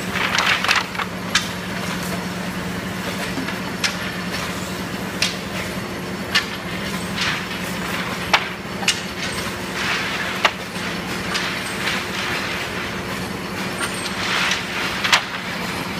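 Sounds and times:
factory machinery hum: 0:00.0 - 0:15.9
wooden sticks clacking together: 0:00.2 - 0:01.5, 0:13.8 - 0:15.6
scraping rustle of sticks: 0:09.1 - 0:13.0, 0:13.8 - 0:15.8.

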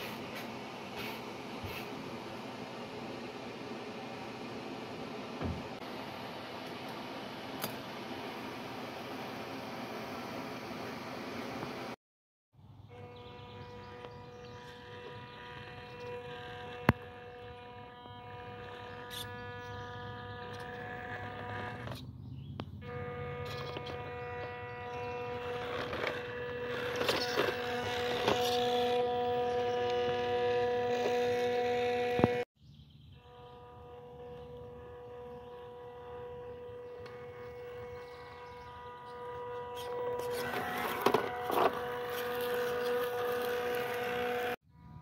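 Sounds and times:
electric motor whining: 0:13.1 - 0:22.0, 0:22.8 - 0:32.4, 0:33.3 - 0:44.6.

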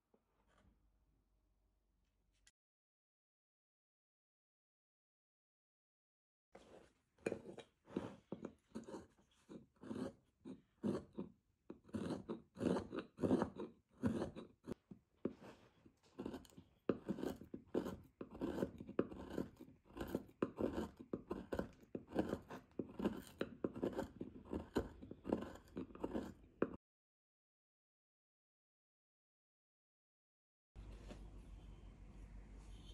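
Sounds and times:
carving tool scraping hard wood: 0:06.7 - 0:26.8.

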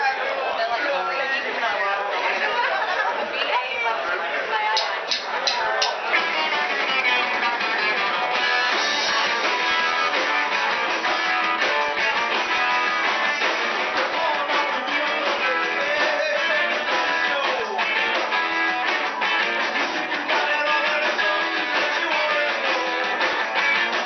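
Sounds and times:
drum kit: 0:04.8 - 0:24.0
electric guitars: 0:05.1 - 0:24.0.

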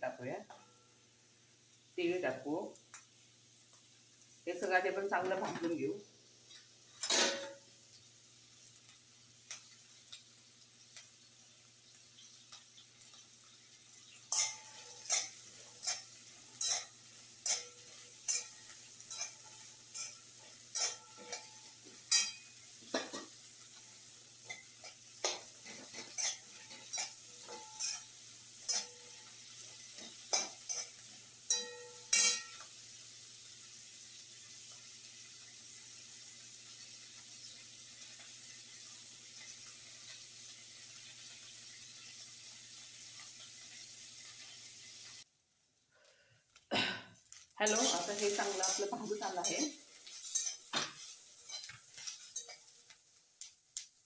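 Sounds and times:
faint sizzle of frying: 0:00.0 - 0:54.0
metal spoon scraping a pan: 0:06.5 - 0:07.6, 0:14.2 - 0:32.7, 0:47.6 - 0:52.9
spoon clanking against pan: 0:07.0 - 0:07.6, 0:14.3 - 0:23.4, 0:24.4 - 0:32.7, 0:47.6 - 0:52.8.

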